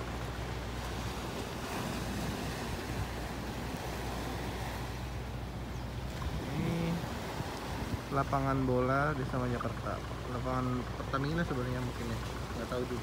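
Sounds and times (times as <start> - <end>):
small waves washing on rocks: 0.0 - 13.0
wind on microphone: 0.9 - 8.4.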